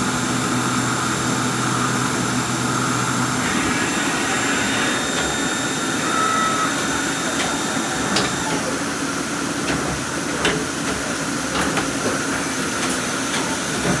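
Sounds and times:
lathe mechanical hum and hiss: 0:00.0 - 0:14.0
faint high whine: 0:03.3 - 0:08.8.

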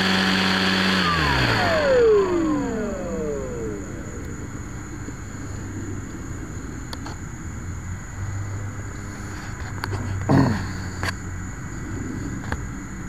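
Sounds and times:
faint high whine: 0:00.0 - 0:10.3
muffled low rumble: 0:01.6 - 0:10.3.

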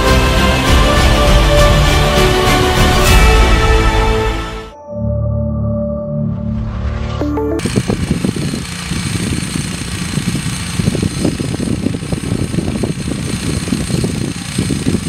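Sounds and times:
small engine running roughly: 0:07.6 - 0:15.0.

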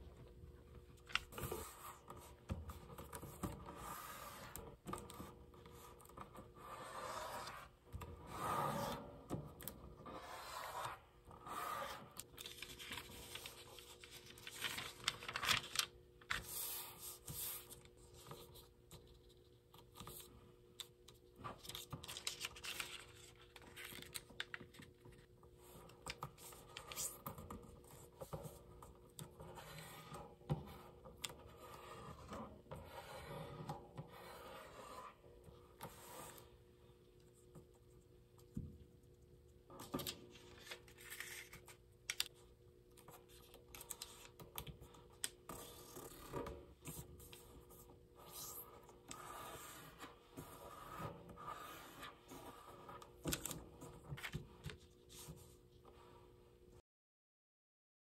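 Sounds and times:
paper creases rubbed flat: 0:06.6 - 0:07.7
paper rustling and crinkling: 0:12.2 - 0:17.9, 0:21.6 - 0:25.3, 0:39.9 - 0:42.3.

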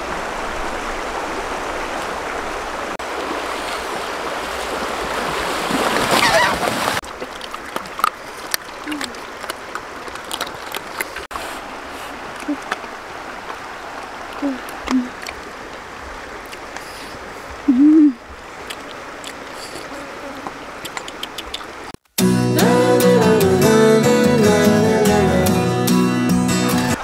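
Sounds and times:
stream water running: 0:00.0 - 0:27.0
sharp clicks: 0:20.8 - 0:21.7.

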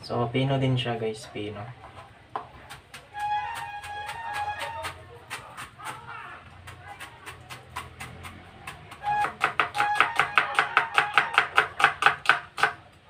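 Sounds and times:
knife chopping on plastic board: 0:06.7 - 0:12.8.

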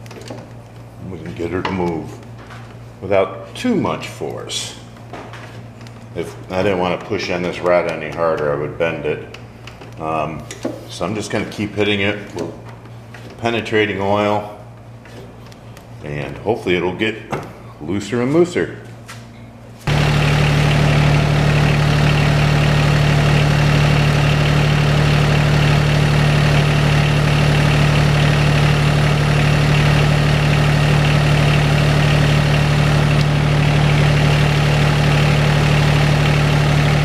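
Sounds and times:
tractor diesel engine idling: 0:19.9 - 0:37.0.

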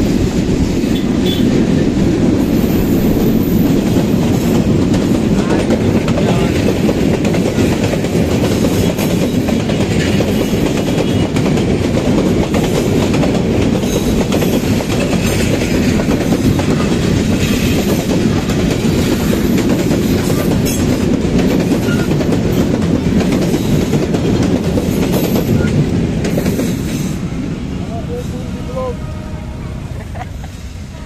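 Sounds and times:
train wheels rumbling on rails: 0:00.0 - 0:31.0.

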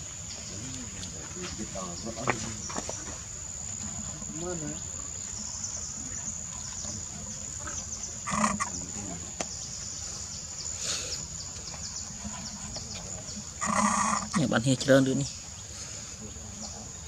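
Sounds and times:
high-pitched insect drone: 0:08.2 - 0:09.2, 0:13.3 - 0:14.6.

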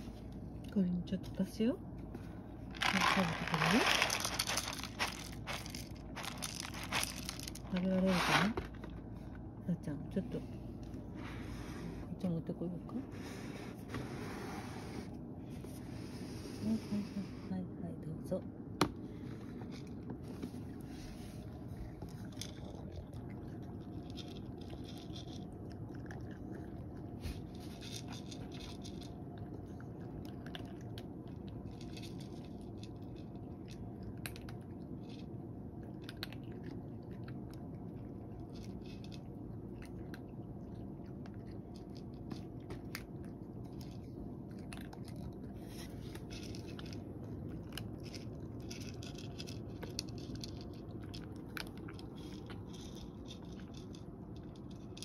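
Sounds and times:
steady low hum: 0:00.0 - 0:55.0
cat crunching dry kibble: 0:02.5 - 0:09.6, 0:18.9 - 0:55.0.

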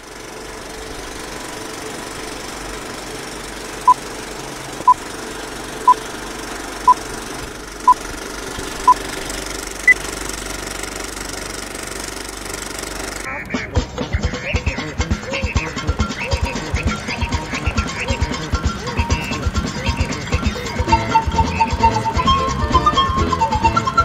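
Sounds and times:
film projector mechanical rattle: 0:00.0 - 0:13.6.

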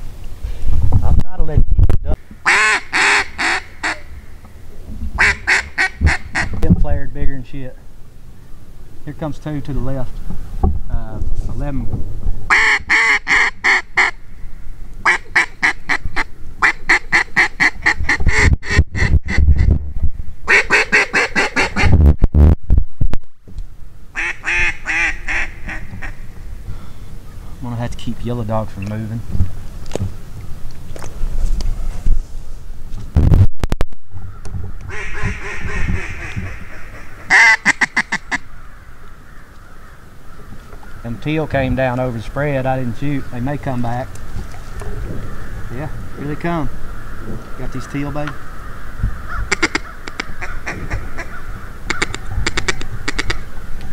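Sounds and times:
duck calls quacking: 0:02.4 - 0:04.2, 0:05.2 - 0:06.6, 0:12.5 - 0:14.2, 0:15.0 - 0:19.7, 0:20.4 - 0:22.0, 0:24.2 - 0:26.2, 0:34.9 - 0:38.9, 0:45.3 - 0:53.5
sharp clicks: 0:49.6 - 0:50.3.

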